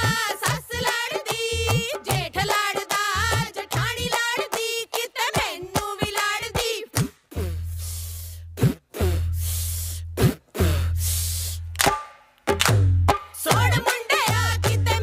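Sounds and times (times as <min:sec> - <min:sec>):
women singing folk song: 0:00.0 - 0:07.0, 0:13.4 - 0:15.0
rhythmic hand claps: 0:00.0 - 0:07.4, 0:11.7 - 0:15.0.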